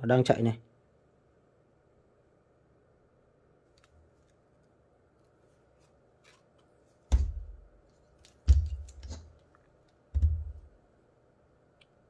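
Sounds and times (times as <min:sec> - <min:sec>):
dull handling thumps: 0:07.1 - 0:07.8, 0:08.4 - 0:09.3, 0:10.1 - 0:10.8.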